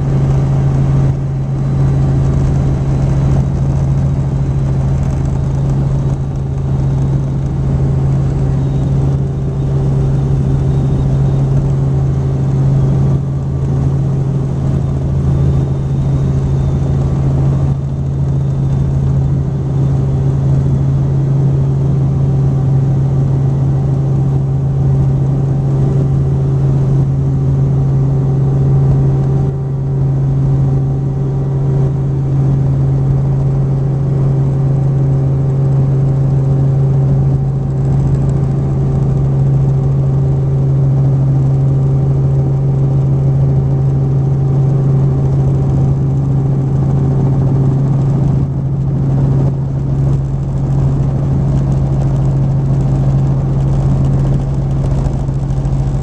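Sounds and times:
helicopter engine and rotors: 0:00.0 - 0:56.0.

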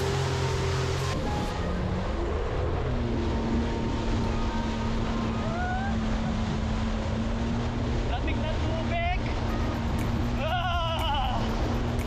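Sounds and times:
jet ski engine running: 0:00.0 - 0:12.0
rushing water spray: 0:02.9 - 0:12.0.

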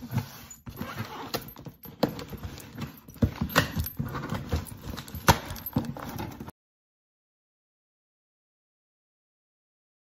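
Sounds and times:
cardboard scraping and rustling: 0:00.0 - 0:06.5.

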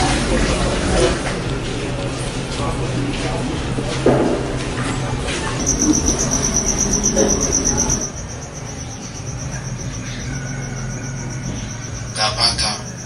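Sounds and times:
cricket chirping: 0:02.6 - 0:13.0.

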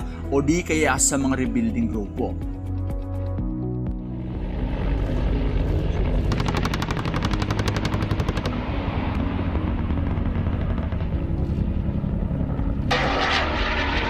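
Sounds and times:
helicopter rotor rumble: 0:02.4 - 0:14.0
rapid automatic gunfire: 0:06.3 - 0:08.5.

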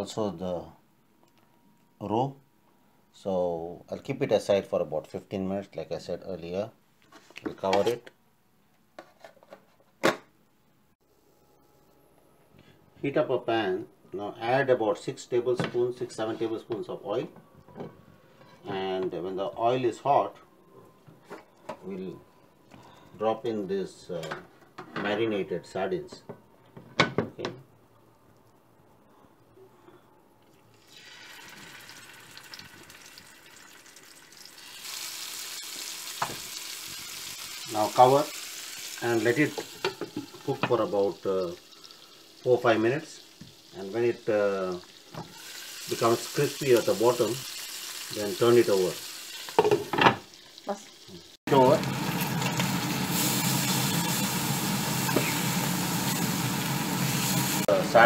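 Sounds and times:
fish sizzling in hot oil: 0:30.8 - 0:43.9, 0:44.9 - 0:57.7.

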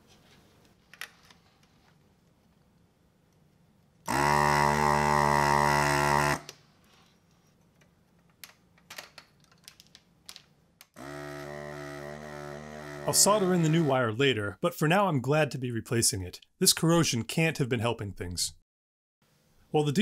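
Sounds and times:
vacuum pump buzzing hum: 0:04.1 - 0:06.5, 0:11.0 - 0:13.8.

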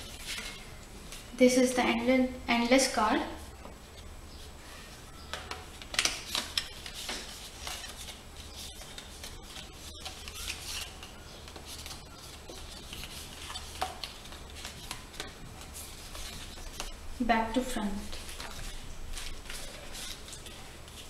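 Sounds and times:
steady low hum: 0:00.0 - 0:21.0
card panels flipping and snapping: 0:05.3 - 0:08.2.

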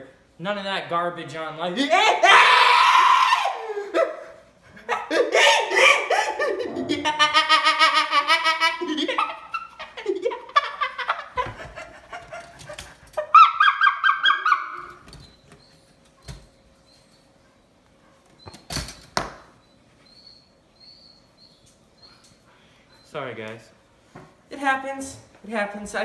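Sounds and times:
man yelling and squealing: 0:01.6 - 0:04.2, 0:05.2 - 0:06.1.

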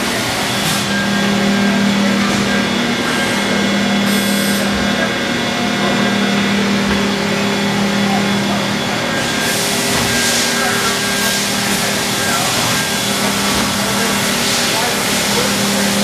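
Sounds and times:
machine spindle hum: 0:00.0 - 0:16.0
coolant spraying hiss: 0:09.2 - 0:16.0.

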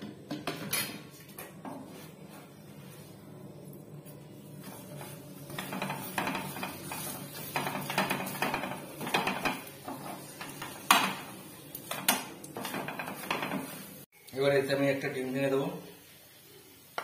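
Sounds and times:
utensils scraping frying pan: 0:04.2 - 0:14.1
utensil knocking against pan: 0:05.6 - 0:11.3, 0:11.9 - 0:13.8.

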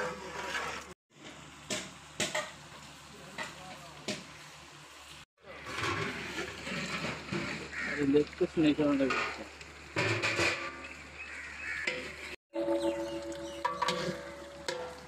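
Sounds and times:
chicken sizzling in oil: 0:00.0 - 0:15.0
metal spatula clinking on pot: 0:11.9 - 0:15.0.

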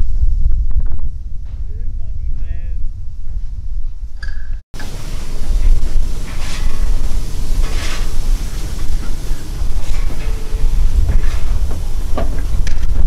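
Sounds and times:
wind on microphone: 0:00.0 - 0:13.0
steady train rumble: 0:04.8 - 0:13.0
steam locomotive hissing steam: 0:04.8 - 0:13.0.

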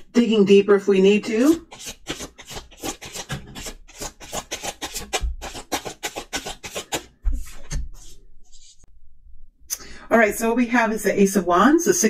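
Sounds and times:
cards being shuffled: 0:01.7 - 0:08.8.

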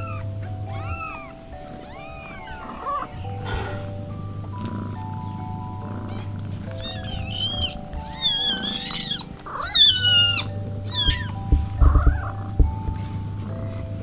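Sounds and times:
kittens mewing: 0:00.0 - 0:13.7
dull handling bumps: 0:00.0 - 0:14.0
soft background music: 0:00.0 - 0:14.0.

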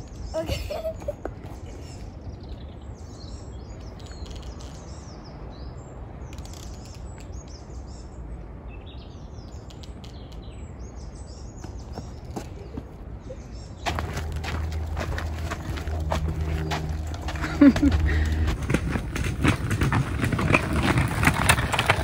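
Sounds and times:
steady low rumble: 0:11.8 - 0:22.0.

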